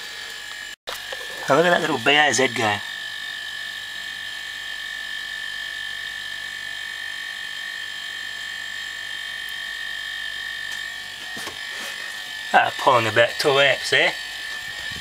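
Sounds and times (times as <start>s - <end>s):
air compressors whining: 0.0s - 3.0s, 10.5s - 15.0s
low electrical hum: 0.0s - 15.0s.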